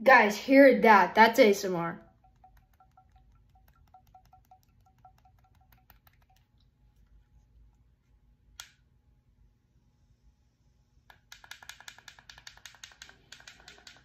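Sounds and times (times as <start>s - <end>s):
rapid ticking with ringing tone: 2.0s - 6.6s.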